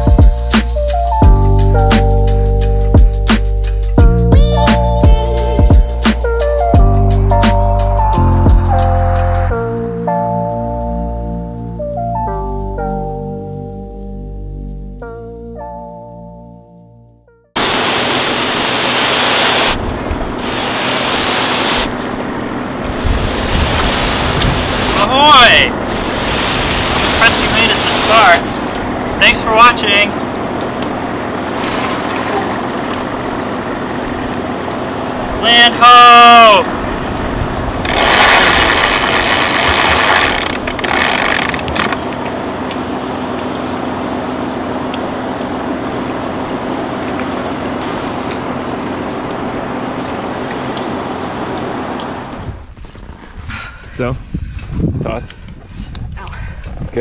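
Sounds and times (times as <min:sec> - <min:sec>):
buffeting rumble: 0:17.6 - 0:57.0
engine hum: 0:17.6 - 0:57.0
wind rushing over microphone: 0:21.2 - 0:29.3, 0:36.7 - 0:40.7, 0:52.4 - 0:57.0.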